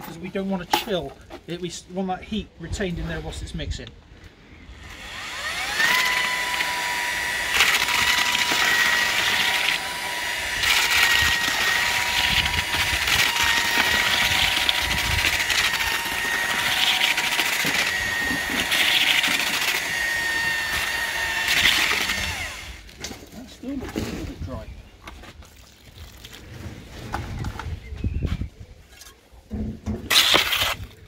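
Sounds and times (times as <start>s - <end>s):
paddle mixer motor whine: 4.7s - 22.9s
paddle scraping gritty mortar: 10.6s - 27.9s, 29.8s - 31.0s.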